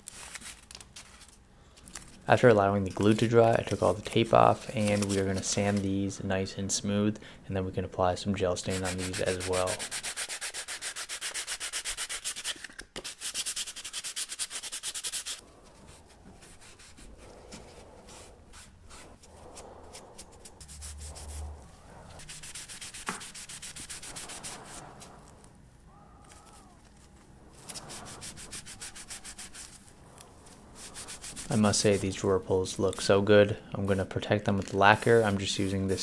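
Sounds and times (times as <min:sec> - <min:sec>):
sandpaper rubbing wood: 0:03.0 - 0:05.8, 0:08.6 - 0:25.5, 0:27.5 - 0:32.3
rag wiping wood: 0:08.6 - 0:12.4, 0:13.2 - 0:25.5, 0:27.5 - 0:32.3.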